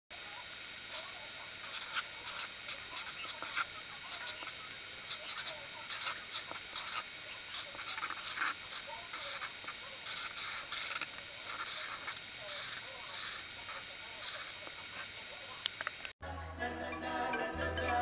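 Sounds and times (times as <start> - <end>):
marker scratching on paper: 0.9 - 15.1.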